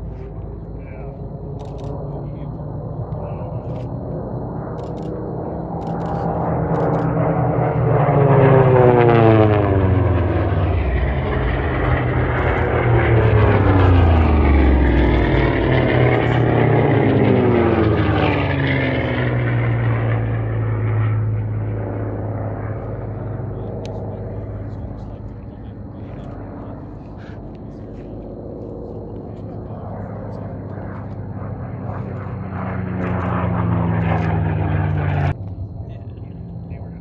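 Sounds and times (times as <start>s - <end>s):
propeller plane engines droning: 0.0s - 37.0s.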